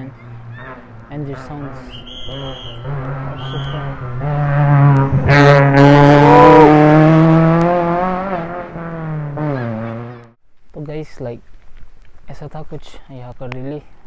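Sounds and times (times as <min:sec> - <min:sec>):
rally car engine passing: 0:00.0 - 0:10.4.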